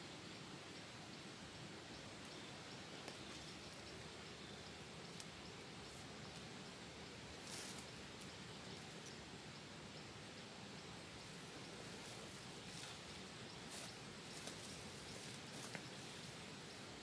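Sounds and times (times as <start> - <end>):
faint outdoor hiss: 0.0 - 17.0
soft ticks: 1.9 - 5.6.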